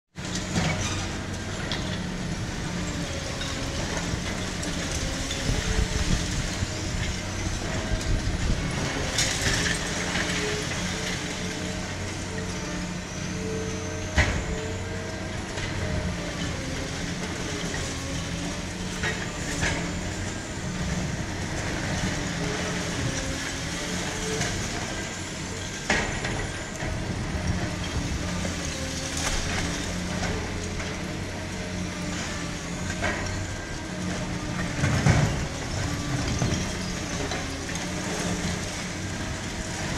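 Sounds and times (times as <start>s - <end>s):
excavator diesel engine running: 0.2s - 39.9s.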